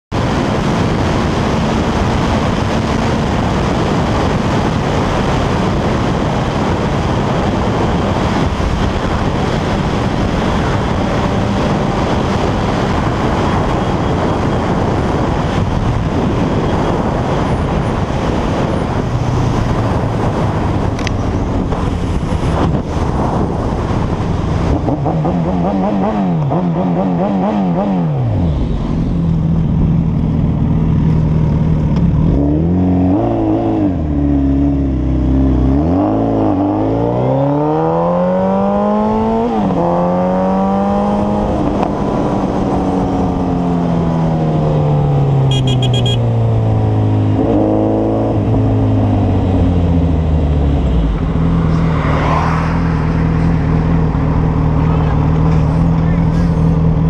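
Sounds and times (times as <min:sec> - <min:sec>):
wind rush: 0:00.1 - 0:57.0
motorcycle engine running: 0:22.8 - 0:35.7, 0:45.0 - 0:46.7.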